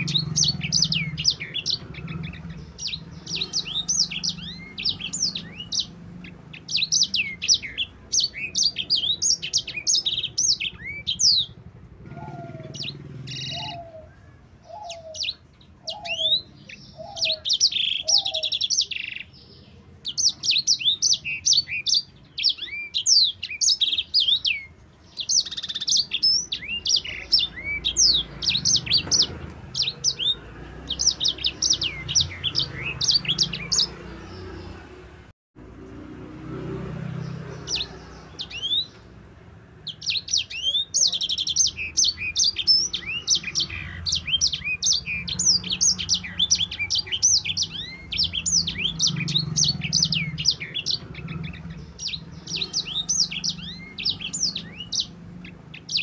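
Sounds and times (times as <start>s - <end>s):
lower bird call: 0.0s - 19.3s
finch singing trills: 0.0s - 35.2s, 37.0s - 56.0s.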